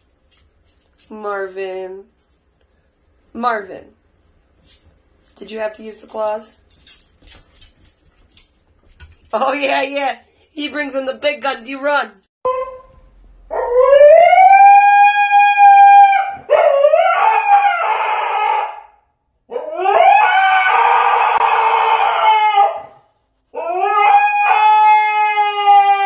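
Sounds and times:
husky howling: 13.5 - 26.0.

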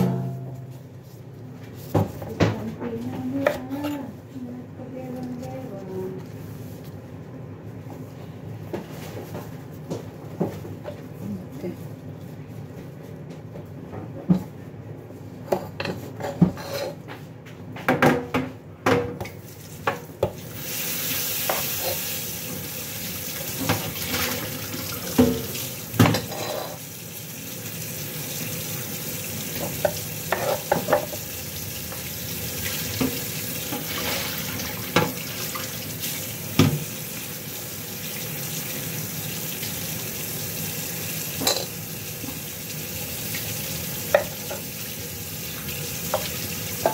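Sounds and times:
food sizzling in a pan: 20.4 - 46.9.

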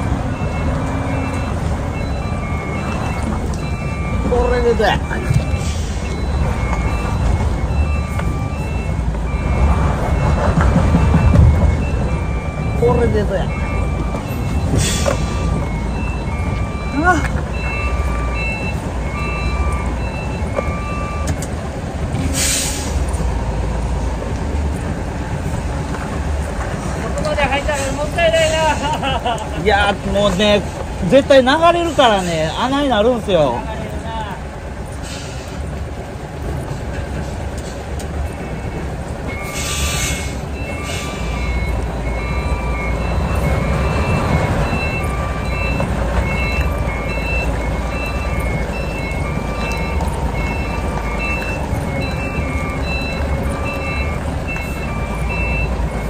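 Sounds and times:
reverse warning beeps: 0.0 - 24.8, 25.5 - 56.0
diesel engine running: 0.0 - 56.0
air hissing: 39.4 - 41.3.

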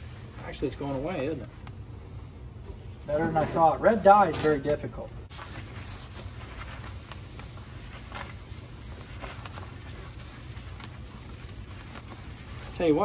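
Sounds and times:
hand rubbing pipe insulation: 0.0 - 1.8, 5.3 - 13.0
steady low hum: 0.0 - 13.0.

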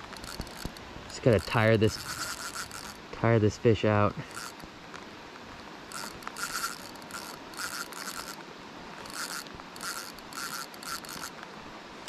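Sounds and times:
fishing reel buzzing: 0.0 - 3.0, 4.2 - 4.7, 5.9 - 8.4, 9.0 - 11.4.

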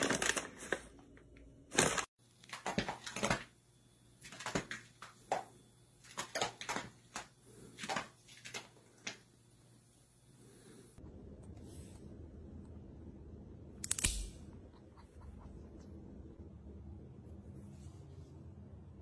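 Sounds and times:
paper bag crinkling: 0.0 - 1.0.

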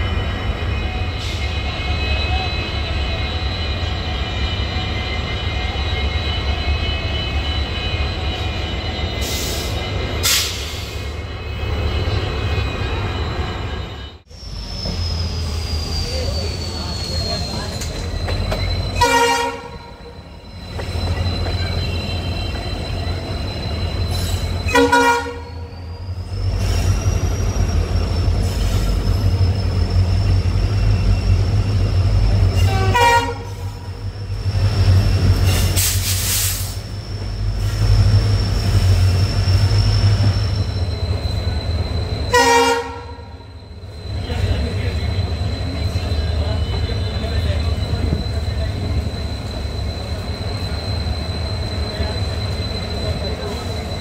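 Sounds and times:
train rumbling: 0.0 - 54.0
diesel locomotive horn blasts: 19.0 - 20.0, 24.7 - 25.7, 32.6 - 33.9, 42.3 - 43.5.

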